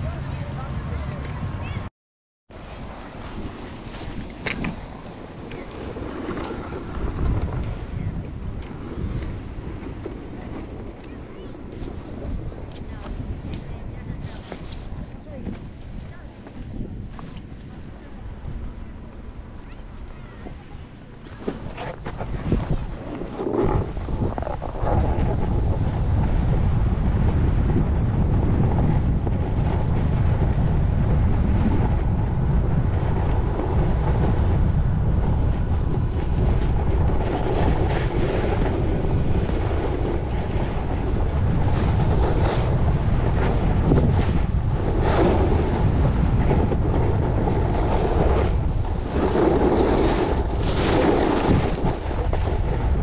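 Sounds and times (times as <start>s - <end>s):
wind buffeting microphone: 2.5s - 53.0s
skis scraping over packed snow: 2.6s - 18.2s, 21.2s - 53.0s.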